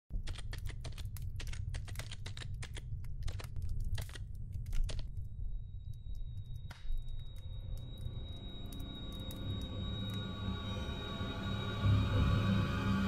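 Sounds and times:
typing on a keyboard: 0:00.1 - 0:05.3
low rumbling drone: 0:05.3 - 0:13.0.

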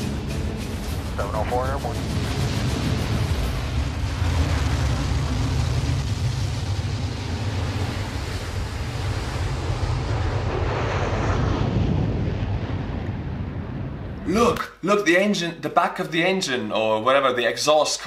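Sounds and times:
jet engine roaring: 0:00.0 - 0:14.4.

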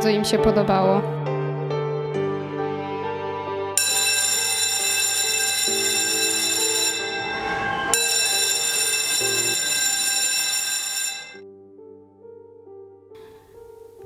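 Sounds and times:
soft background music: 0:00.0 - 0:09.7, 0:11.4 - 0:14.0
electric school bell ringing: 0:03.8 - 0:11.4.

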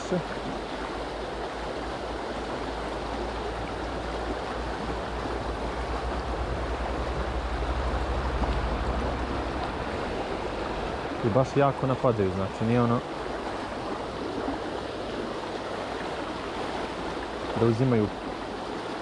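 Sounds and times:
river water flowing: 0:00.0 - 0:19.0
low rumble: 0:04.6 - 0:11.3.

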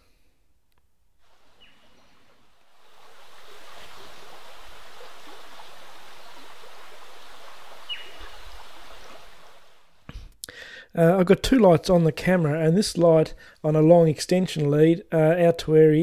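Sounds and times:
stream water rushing: 0:01.2 - 0:10.0.

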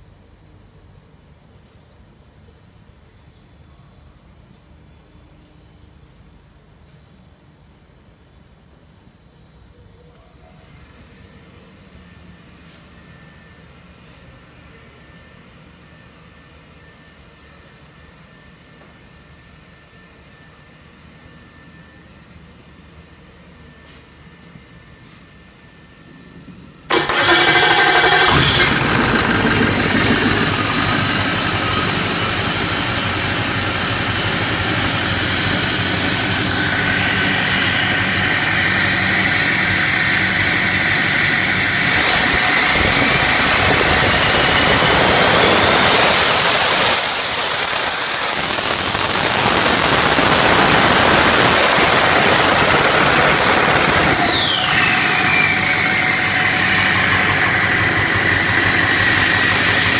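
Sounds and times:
high turbo whine: 0:16.7 - 0:59.9
engine starter cranking: 0:26.9 - 0:43.6
diesel engine running loudly: 0:26.9 - 0:59.9.

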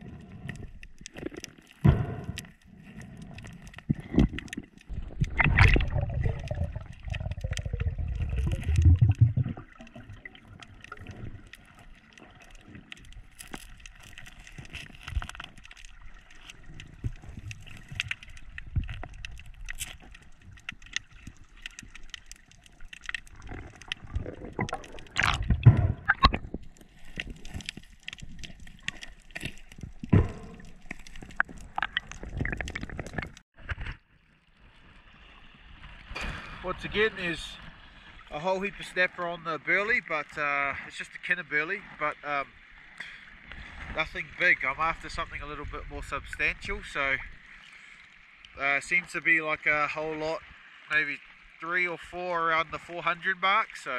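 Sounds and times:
crackle of small clicks: 0:00.0 - 0:34.6, 0:42.8 - 0:49.2
underwater rush of water and bubbles: 0:00.0 - 0:53.9.

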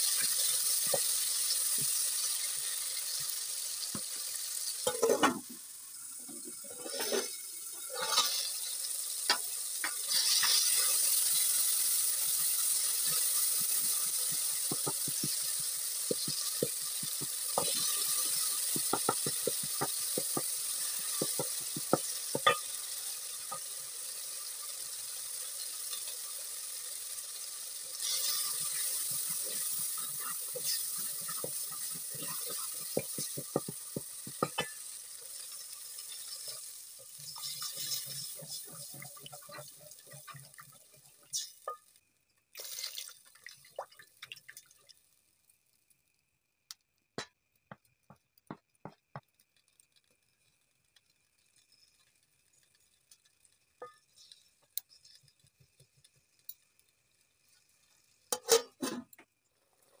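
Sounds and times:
vegetables sizzling in oil: 0:00.0 - 0:46.1, 0:46.7 - 1:00.0
water pouring into pot: 0:00.0 - 0:46.1, 0:49.2 - 0:58.8
wooden spoon knocking pot: 0:14.7 - 0:15.5, 0:18.7 - 0:22.6, 0:32.3 - 0:34.8.

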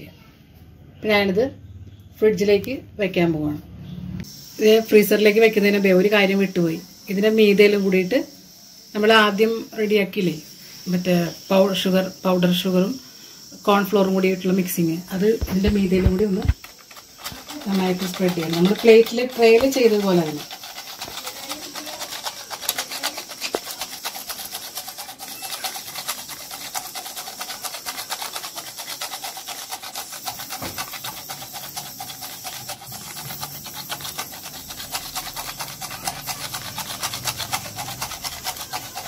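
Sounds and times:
sieve rasping: 0:14.0 - 0:39.0.

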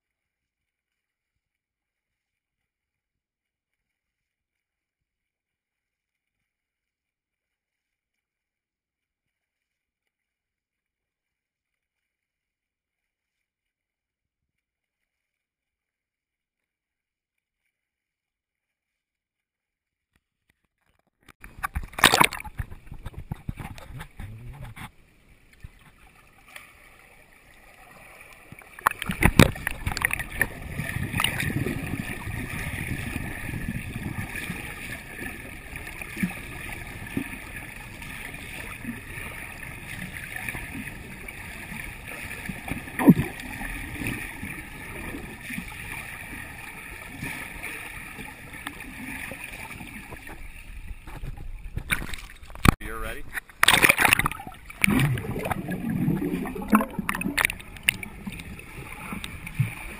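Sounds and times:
water splashing: 0:20.8 - 0:59.9
muffled underwater rush and gurgle: 0:21.4 - 0:59.9.

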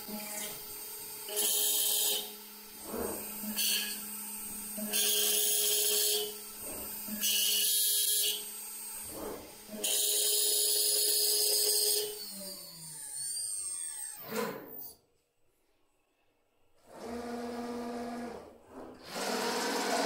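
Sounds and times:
loud high cutting noise: 0:01.3 - 0:04.0, 0:04.9 - 0:12.1.

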